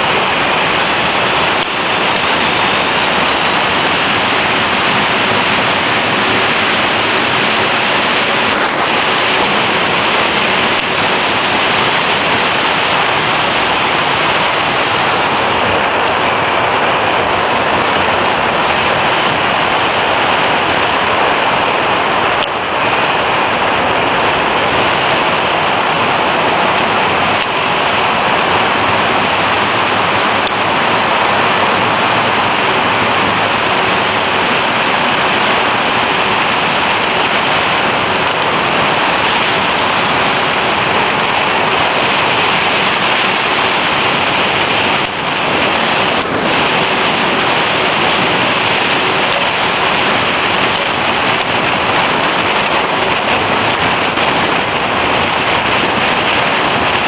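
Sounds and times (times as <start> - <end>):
wind rushing across microphone: 0.0 - 57.0.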